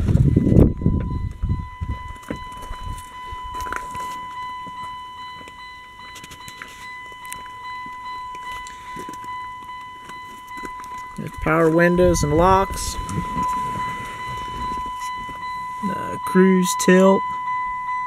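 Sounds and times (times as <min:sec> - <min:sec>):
car door bump and rumble: 0:00.0 - 0:03.9
handling clicks and rustles: 0:00.0 - 0:17.9
car warning chime: 0:00.0 - 0:18.0.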